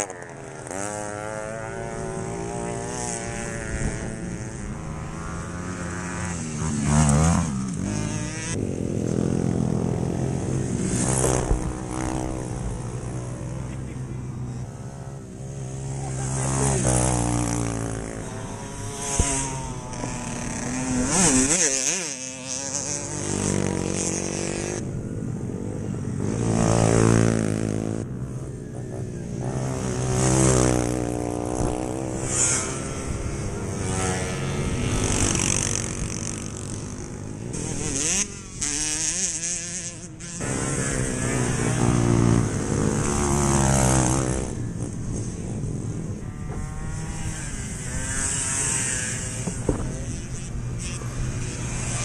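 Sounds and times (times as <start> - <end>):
mopeds buzzing past: 0.0 - 52.0.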